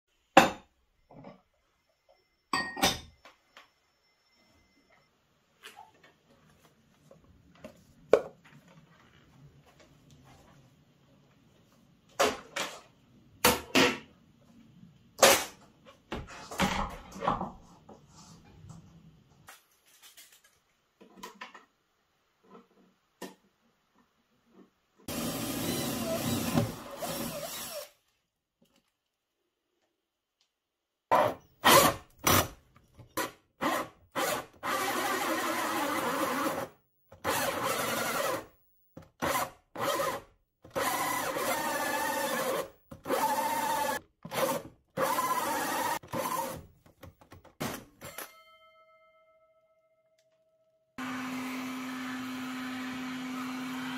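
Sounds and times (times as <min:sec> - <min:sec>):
drill with hole saw cutting wood: 0:25.1 - 0:28.0, 0:33.6 - 0:38.5, 0:39.2 - 0:46.6, 0:51.0 - 0:53.9.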